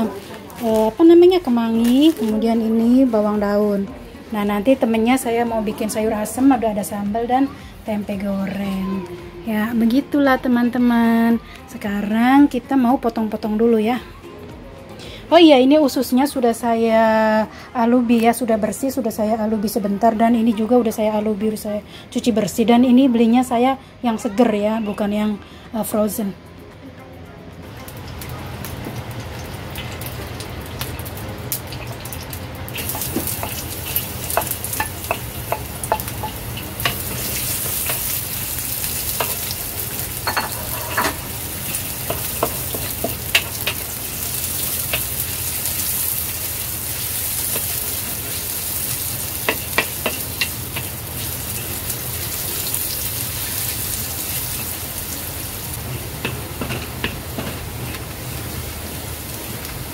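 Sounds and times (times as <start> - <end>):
shallots sizzling in hot oil: 0.0 - 10.0, 27.8 - 59.9
spatula scraping a wok: 32.8 - 54.8, 55.8 - 58.2.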